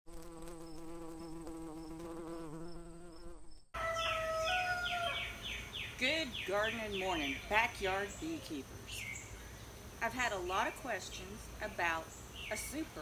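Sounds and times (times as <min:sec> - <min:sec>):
bee buzzing: 0:00.1 - 0:03.7
birds singing: 0:03.9 - 0:11.0, 0:11.6 - 0:13.0.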